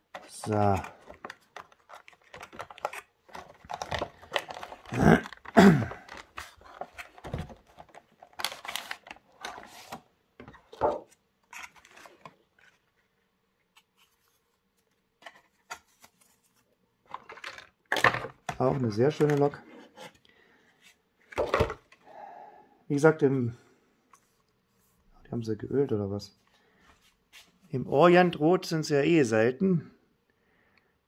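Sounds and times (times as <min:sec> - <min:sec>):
cardboard and plastic packaging rustling: 0:00.0 - 0:13.1, 0:13.8 - 0:20.2.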